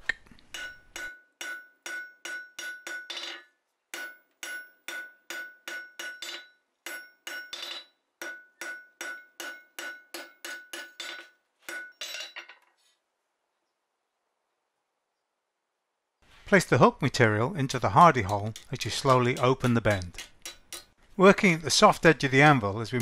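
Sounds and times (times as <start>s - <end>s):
hammer striking hot steel on anvil: 0.5s - 12.5s, 17.7s - 21.0s.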